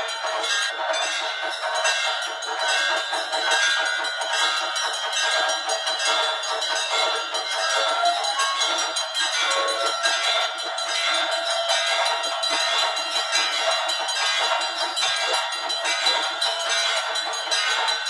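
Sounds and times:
bells ringing fast: 0:00.0 - 0:18.0.

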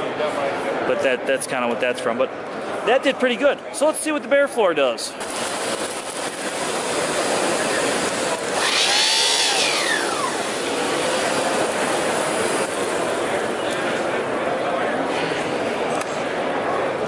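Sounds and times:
vacuum cleaner running: 0:05.2 - 0:13.5.

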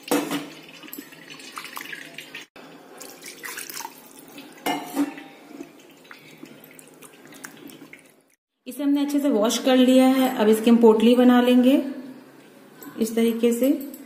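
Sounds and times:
water splashing and dripping: 0:00.0 - 0:08.4.

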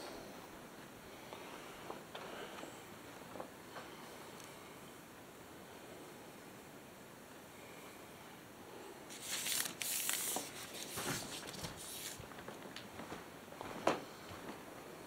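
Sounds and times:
footsteps crunching and scuffing: 0:09.1 - 0:13.8.

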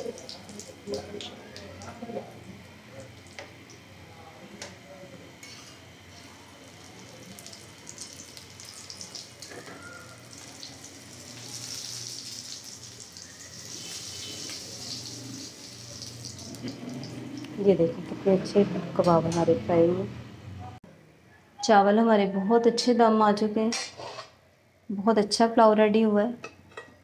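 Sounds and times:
kebabs sizzling in oil: 0:05.4 - 0:17.7.

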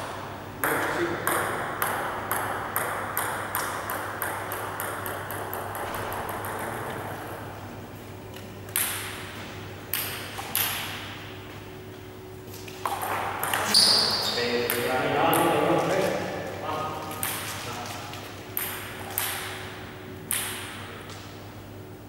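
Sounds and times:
table tennis ball bouncing: 0:00.6 - 0:07.5, 0:08.3 - 0:11.3, 0:12.7 - 0:15.7, 0:17.1 - 0:17.5, 0:18.5 - 0:21.3.

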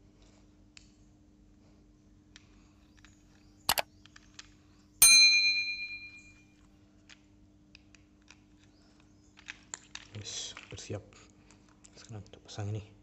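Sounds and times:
notification bell ding: 0:05.0 - 0:06.3.

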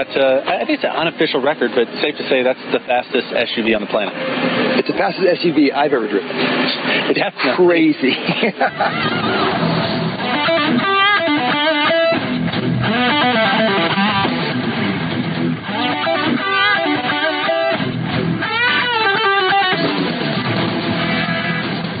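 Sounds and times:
electric guitar bending notes: 0:03.6 - 0:05.0, 0:08.5 - 0:22.0
low bass line: 0:12.1 - 0:18.8.

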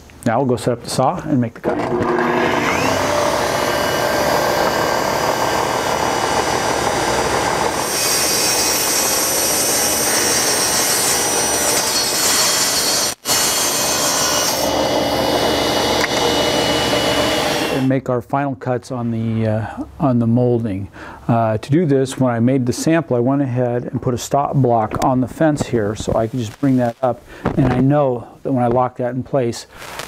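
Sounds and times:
table saw cutting wood: 0:01.6 - 0:17.9.

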